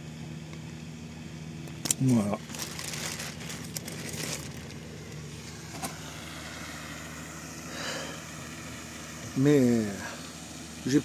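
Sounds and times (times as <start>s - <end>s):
motor humming: 0.5s - 11.0s
plastic sack crinkling: 2.0s - 5.2s.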